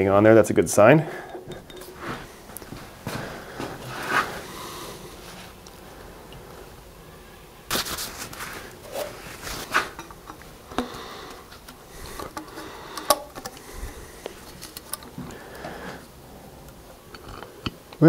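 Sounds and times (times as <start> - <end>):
rubber hose rustling in hands: 7.7 - 10.8.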